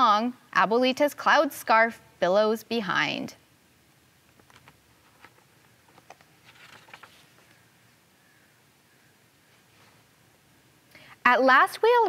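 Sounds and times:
faint rustle: 0:04.4 - 0:10.3.

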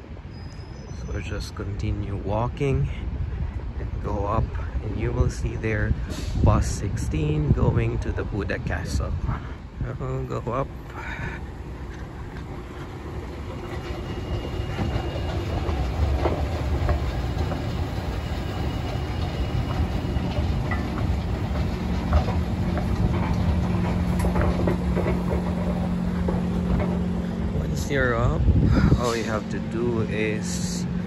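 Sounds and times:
escalator mechanical rumble: 0:00.0 - 0:31.0
low hum: 0:10.6 - 0:31.0
escalator steps clicking: 0:11.6 - 0:27.9.

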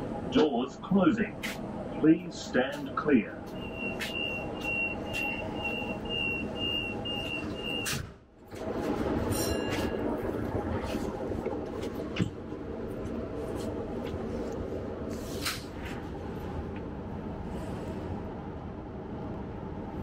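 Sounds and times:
train door warning beeps: 0:03.4 - 0:08.1
train doors shutting thud: 0:07.4 - 0:10.0.

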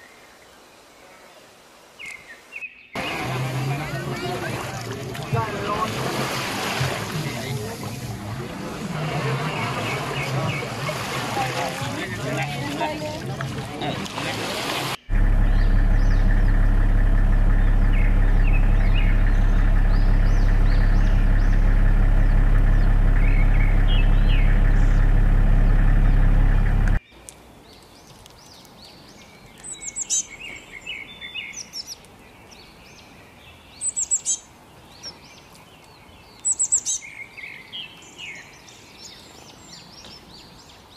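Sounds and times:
songbird chirps: 0:00.0 - 0:40.9
loud steady drone: 0:15.0 - 0:27.0.

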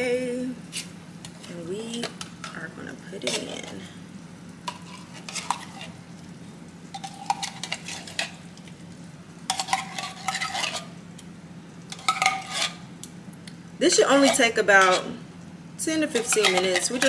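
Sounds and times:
spoon scraping metal can: 0:04.7 - 0:06.0, 0:07.0 - 0:08.4, 0:09.5 - 0:10.9, 0:11.9 - 0:12.8, 0:14.2 - 0:15.2, 0:16.1 - 0:17.0.

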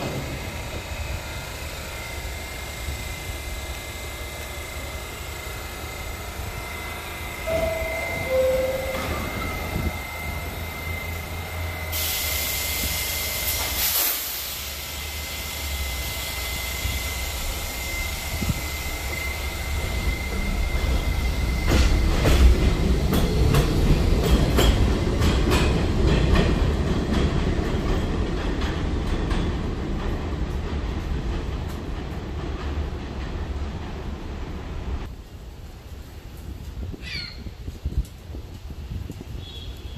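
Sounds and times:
subway train motors and wheels: 0:00.0 - 0:39.9
two-tone door chime: 0:07.4 - 0:10.1
wheels clicking over rail joints: 0:19.8 - 0:34.1.

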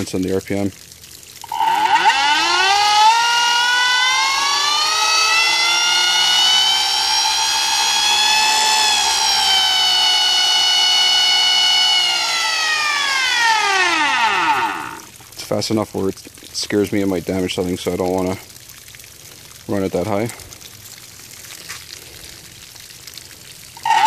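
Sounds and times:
electric motor whining: 0:01.4 - 0:15.1, 0:23.8 - 0:24.0.

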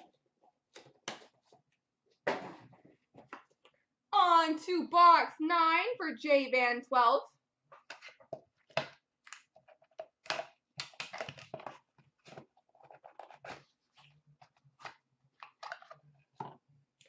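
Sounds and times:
cardboard box and cards rustling: 0:07.7 - 0:16.4.

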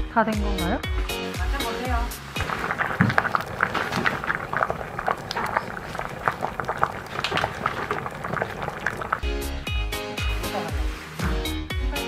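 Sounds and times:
stew bubbles popping: 0:01.6 - 0:09.6.

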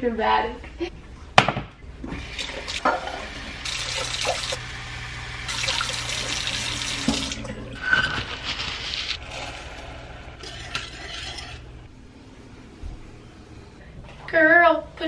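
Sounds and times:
water being poured: 0:02.1 - 0:04.6, 0:05.4 - 0:11.8.

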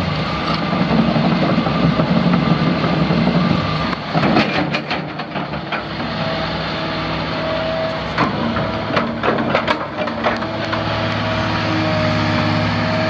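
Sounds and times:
diesel excavator engine running: 0:00.0 - 0:13.0.

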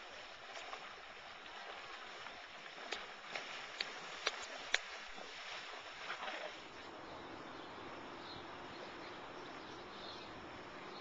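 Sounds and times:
horse splashing through water: 0:00.0 - 0:06.9.

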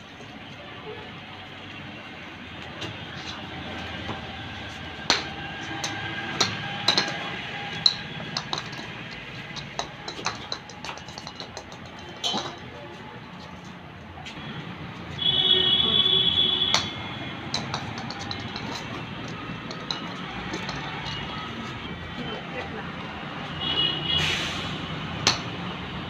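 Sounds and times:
ball clicking on concrete floor: 0:02.6 - 0:13.6, 0:16.3 - 0:22.0, 0:25.1 - 0:25.8.

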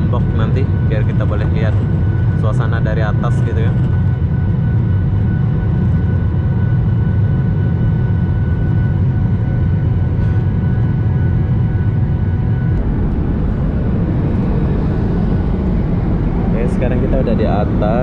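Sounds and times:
airliner engines rumbling: 0:00.0 - 0:18.0
rushing air: 0:12.7 - 0:17.8.

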